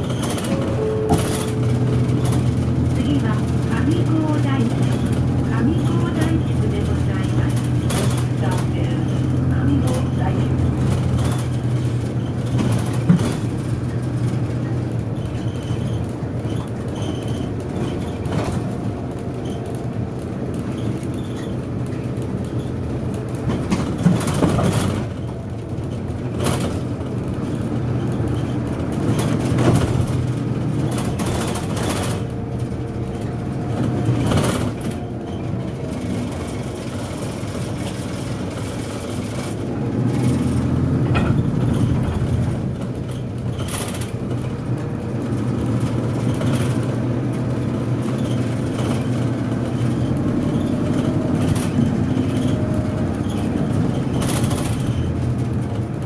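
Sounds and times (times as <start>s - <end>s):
bus engine running: 0.0s - 56.0s
road noise: 0.0s - 56.0s
knocks and rattles: 20.5s - 56.0s.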